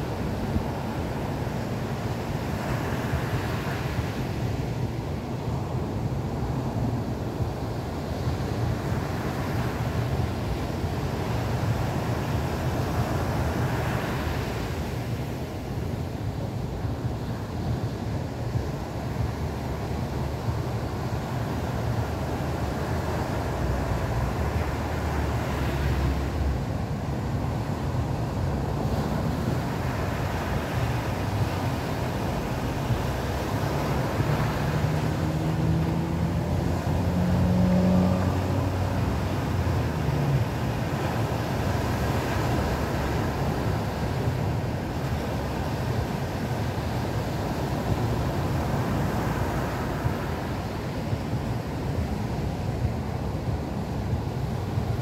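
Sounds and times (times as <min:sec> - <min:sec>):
surf breaking on beach: 0:20.5 - 0:55.0.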